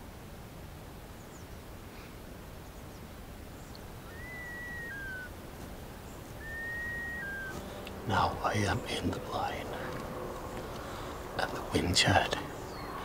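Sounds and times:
bird whistling: 0:04.0 - 0:05.3, 0:06.4 - 0:07.8.

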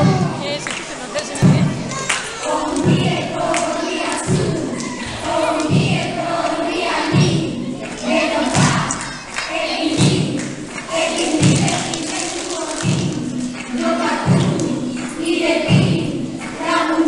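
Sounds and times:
people singing: 0:00.0 - 0:17.0
deep drum beat: 0:01.4 - 0:02.0, 0:02.7 - 0:03.4, 0:04.1 - 0:08.9, 0:09.8 - 0:11.9, 0:12.8 - 0:16.4.

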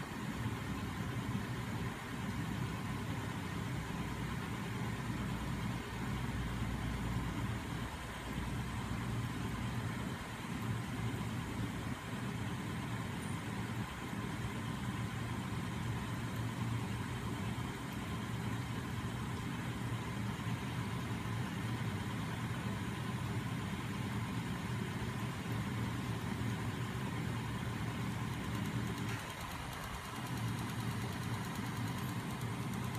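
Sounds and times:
magnet machine running: 0:27.4 - 0:32.9.

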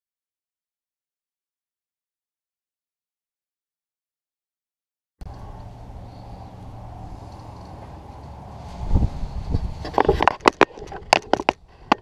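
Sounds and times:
low machinery hum: 0:05.2 - 0:11.9.

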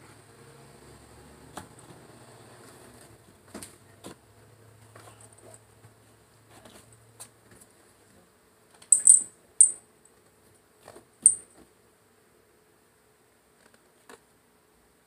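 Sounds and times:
metal collar tag clinking: 0:08.9 - 0:09.8, 0:11.2 - 0:11.5.

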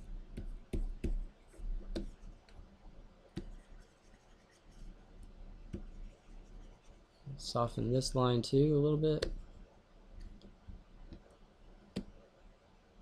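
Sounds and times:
faint low hum: 0:00.0 - 0:13.0
stylus tapping on screen: 0:00.3 - 0:02.6, 0:03.3 - 0:03.8, 0:05.6 - 0:06.6, 0:09.2 - 0:09.4, 0:11.9 - 0:12.2.

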